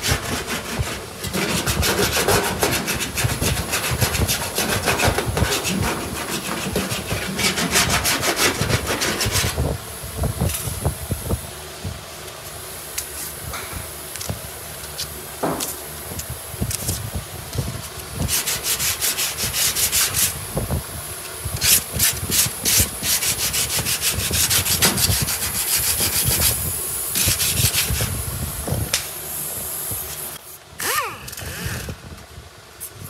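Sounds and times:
sandpaper scraping on body filler: 0.0s - 9.7s, 17.8s - 20.4s, 21.6s - 28.2s.

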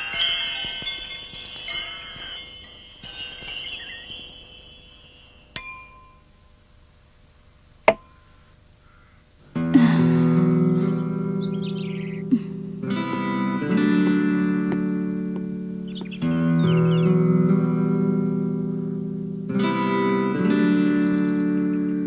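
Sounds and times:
wind chime tinkling: 0.0s - 6.7s.

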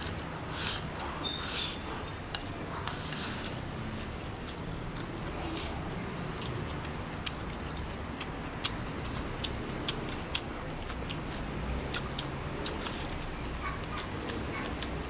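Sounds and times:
chewing: 0.0s - 15.0s.

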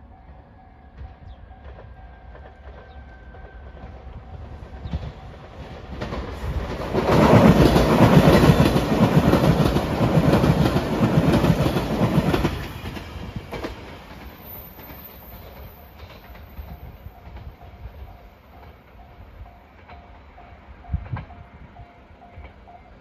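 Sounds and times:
electric train passing: 0.0s - 23.0s
wheels clattering on rails: 1.0s - 19.1s.

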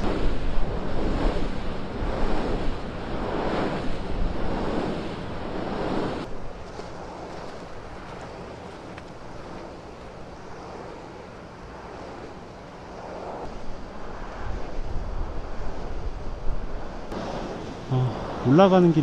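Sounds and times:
wind gusting over microphone: 0.0s - 19.0s
footsteps crunching in snow: 6.3s - 10.2s.

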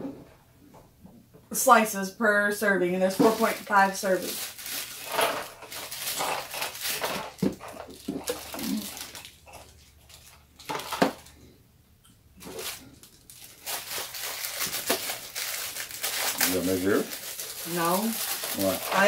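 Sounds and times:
plastic sleeve crinkling: 3.0s - 11.3s, 12.4s - 19.0s
crackers clattering into plastic tray: 3.2s - 11.3s, 12.6s - 19.0s.

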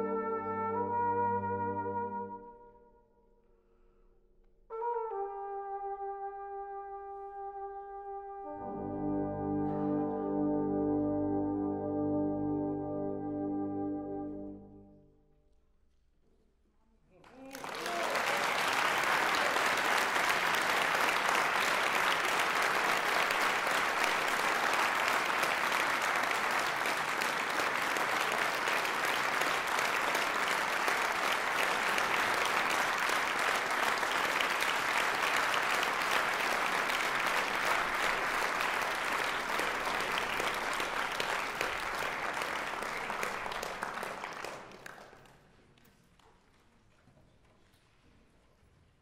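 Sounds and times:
audience applauding: 17.2s - 45.8s.

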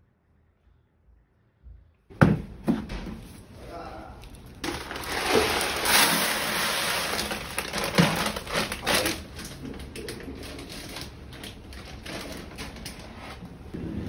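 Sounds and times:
litter pellets pouring into box: 4.6s - 9.2s.

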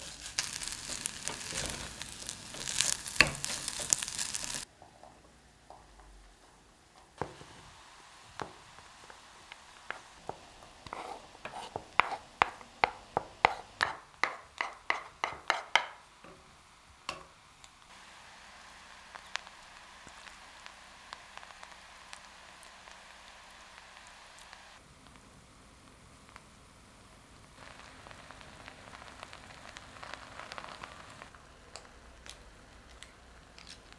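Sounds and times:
stone pot hissing on gas burner: 0.0s - 4.7s, 7.2s - 31.9s
wooden spoon tapping and scraping: 0.8s - 6.1s, 9.8s - 16.4s.

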